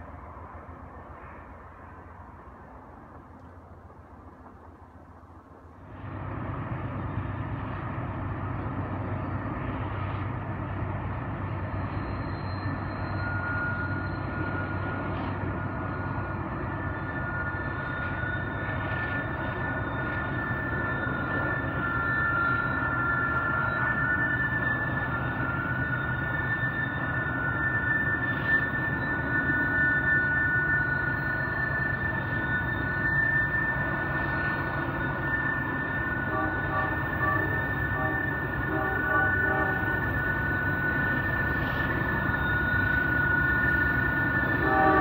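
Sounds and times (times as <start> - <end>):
freight train rumble: 0.0 - 45.0
steel wheels squealing: 11.1 - 45.0.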